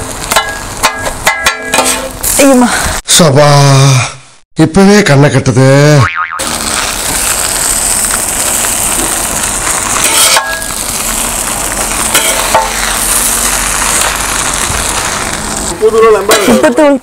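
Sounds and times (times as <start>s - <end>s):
food sizzling on griddle: 0.0s - 3.0s, 6.4s - 17.0s
metal blades chopping on griddle: 0.2s - 2.2s, 6.6s - 15.3s, 16.3s - 16.7s.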